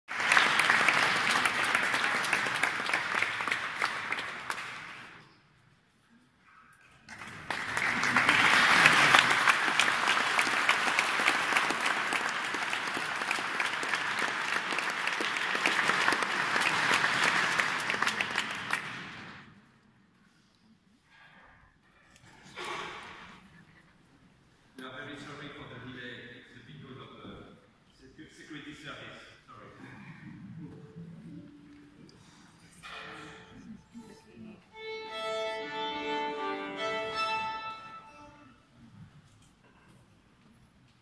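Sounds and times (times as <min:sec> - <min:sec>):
audience applauding: 0:00.1 - 0:05.2, 0:07.1 - 0:19.5.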